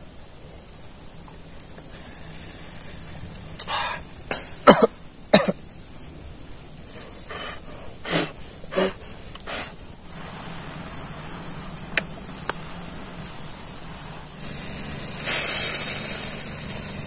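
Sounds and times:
man coughing: 4.6 - 5.6.

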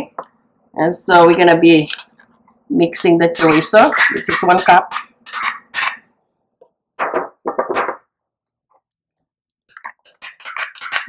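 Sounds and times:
plastic spoon scraping ceramic dish: 9.7 - 11.0.

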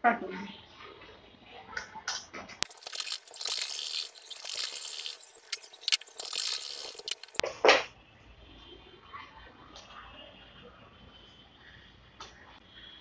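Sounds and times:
sharp clicks: 2.6 - 7.4.

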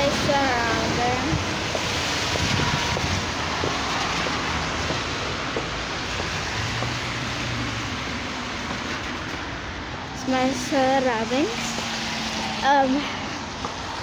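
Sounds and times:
wind on microphone: 0.0 - 4.0
passing traffic: 0.0 - 14.0.

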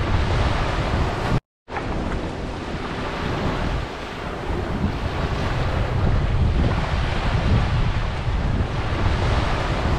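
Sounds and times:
small waves washing onto beach: 0.0 - 9.9
wind noise on microphone: 0.0 - 9.9.

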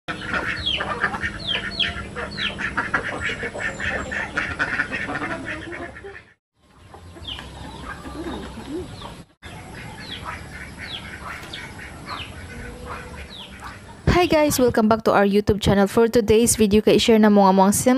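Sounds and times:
ducks calling: 0.1 - 14.1.

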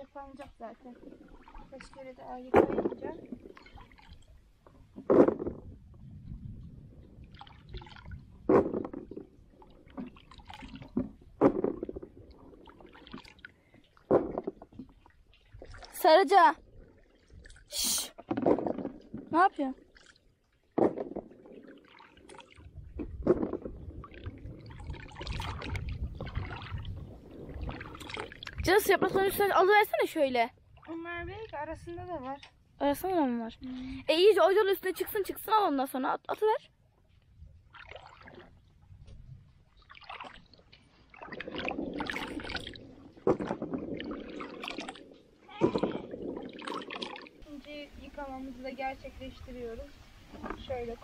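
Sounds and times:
water sloshing in a bucket: 0.0 - 6.4, 7.0 - 51.0
loud splashes or knocks: 2.4 - 4.1, 4.9 - 5.8, 7.4 - 13.3, 14.0 - 15.0, 18.2 - 19.5, 20.7 - 29.6, 41.1 - 47.5.

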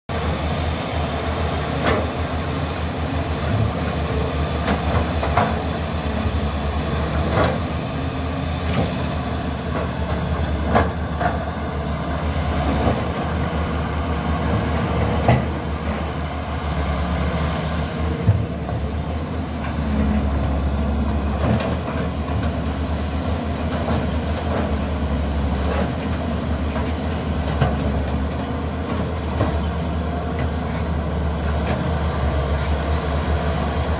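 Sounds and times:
excavator diesel engine running: 0.1 - 33.9.

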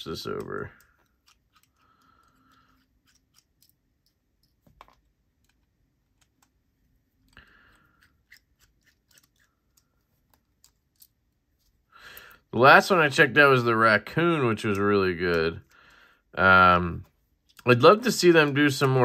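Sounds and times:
screwdriver metallic clicks and scrapes: 0.3 - 6.6, 7.2 - 11.3.

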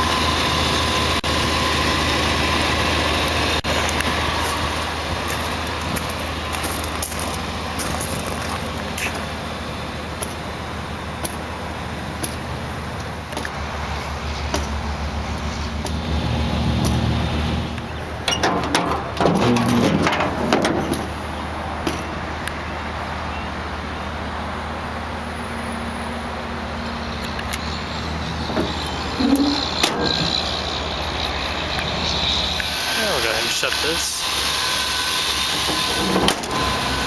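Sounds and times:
pickup engine idling: 0.0 - 34.3
tailgate metal clunks and rattles: 18.2 - 21.2.

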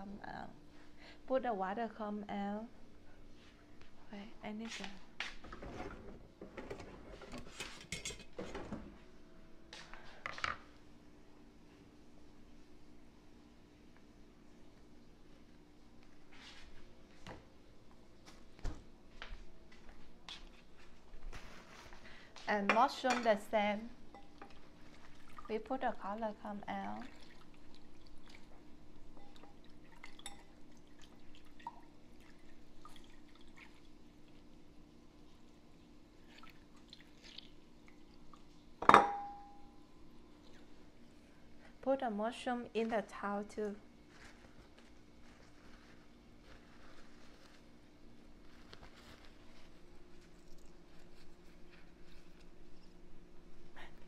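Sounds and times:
faint steady hum: 0.0 - 54.0
dishes and utensils clinking: 6.6 - 8.8, 38.8 - 39.6
water dripping and splashing: 24.8 - 25.5, 26.9 - 28.6, 29.2 - 34.5, 36.2 - 38.8.

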